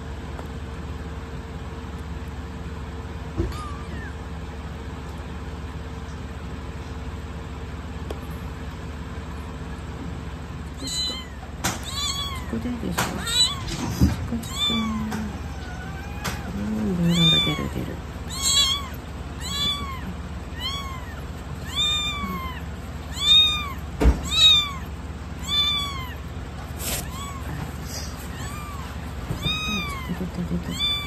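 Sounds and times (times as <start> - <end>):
kitten meowing: 3.4 - 4.2, 10.7 - 31.0.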